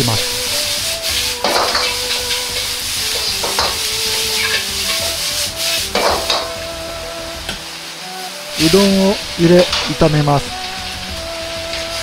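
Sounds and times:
food sizzling in a wok: 0.0 - 12.0
metal ladle scraping a wok: 0.5 - 6.5.

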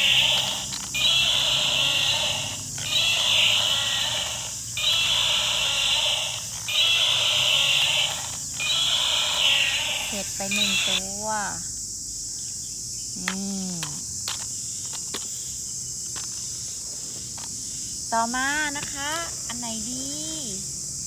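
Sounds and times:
toy dinosaur roar: 0.0 - 11.0.

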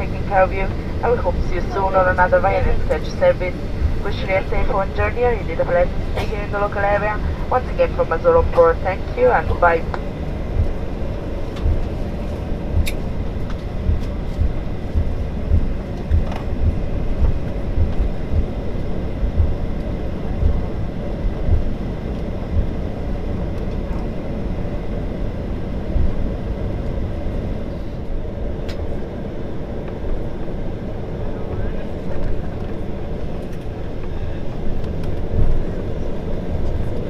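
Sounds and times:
airliner bumping while rolling: 0.0 - 27.6
jet engines idling: 0.0 - 37.0.

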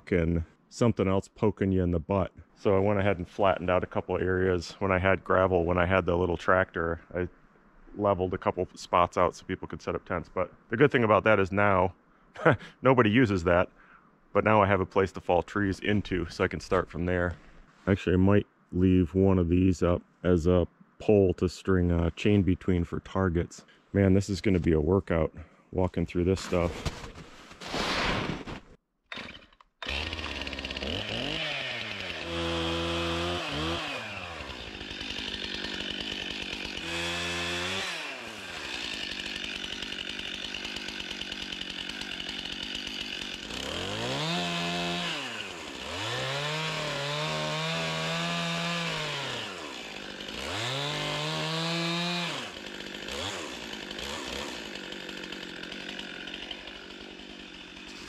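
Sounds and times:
chainsaw idling and revving: 29.1 - 58.0.

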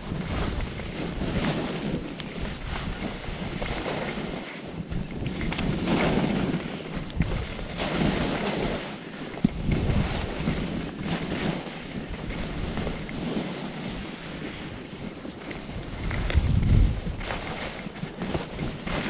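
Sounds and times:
wind buffeting microphone: 0.0 - 8.5, 9.4 - 19.0
skis scraping over snow: 0.0 - 19.0.

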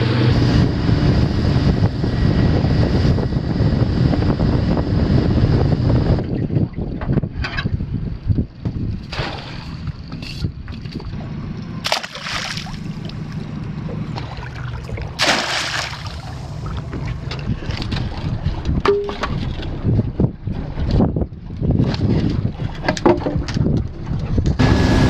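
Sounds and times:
wind buffeting microphone: 0.0 - 25.0
water sloshing and splashing: 8.6 - 24.6
trap hauled from water splashing: 9.0 - 11.1, 11.8 - 13.4, 14.2 - 19.8.

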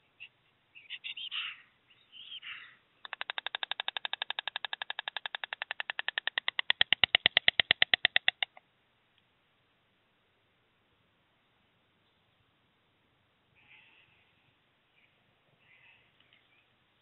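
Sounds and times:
stork clattering its bill: 3.0 - 8.6.

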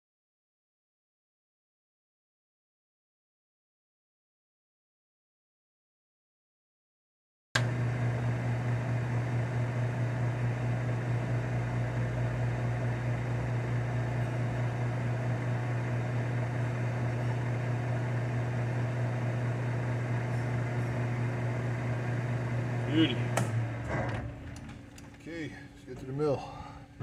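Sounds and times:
electric machinery hum: 7.6 - 27.0.

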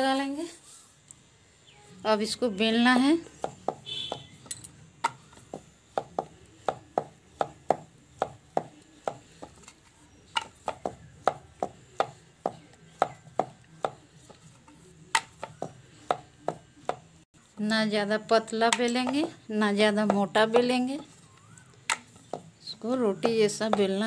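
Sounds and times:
rolling pin knocking on wooden board: 5.0 - 9.7, 10.3 - 14.4, 15.1 - 17.0, 21.9 - 22.5.

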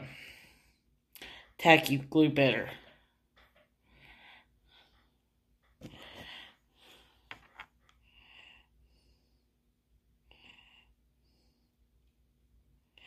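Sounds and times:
soft breathing: 2.9 - 12.0.

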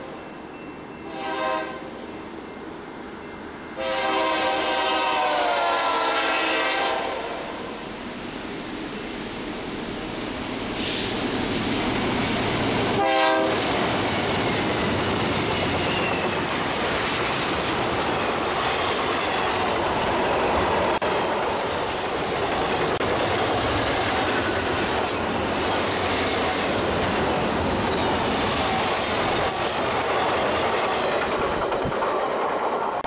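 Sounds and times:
locomotive horn blast: 1.0 - 2.0, 3.8 - 7.7, 12.9 - 13.6
train wheels rumbling and clattering: 8.9 - 33.0.

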